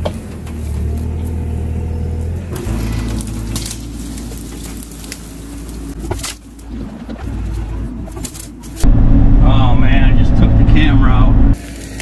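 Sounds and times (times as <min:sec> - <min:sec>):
branches cracking and snapping: 0:00.0 - 0:08.8
excavator diesel engine: 0:00.0 - 0:12.0.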